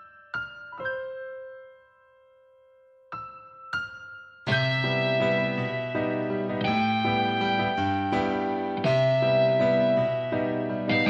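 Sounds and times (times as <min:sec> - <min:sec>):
gentle pop ballad instrumental: 0:04.5 - 0:11.0.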